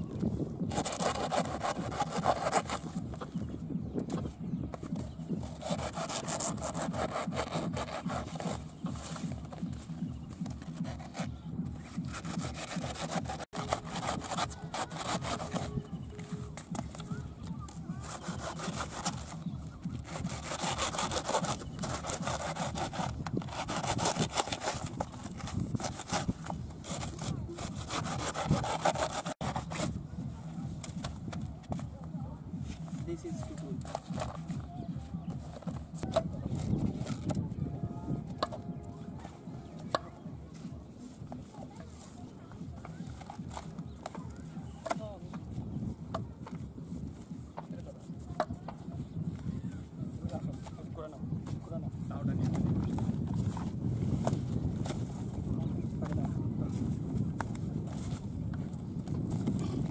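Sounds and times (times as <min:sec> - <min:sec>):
hand saw cutting soft trunk: 0:00.7 - 0:03.3, 0:05.4 - 0:09.6, 0:10.4 - 0:11.3, 0:11.9 - 0:16.0, 0:18.0 - 0:30.0, 0:33.8 - 0:34.6.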